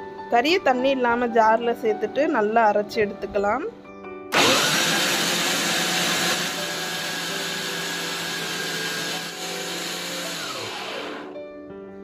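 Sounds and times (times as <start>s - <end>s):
mixer grinder motor whine: 4.3s - 11.4s.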